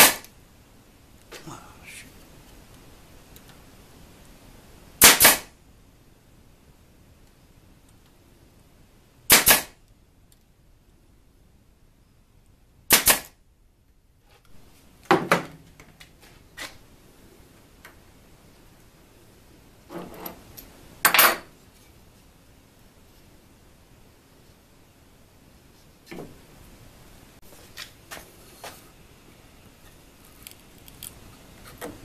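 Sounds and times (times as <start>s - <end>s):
nail gun firing: 0.0s - 0.3s, 5.0s - 5.5s, 9.3s - 9.8s, 12.9s - 13.4s
tools knocking and clattering: 21.0s - 21.5s.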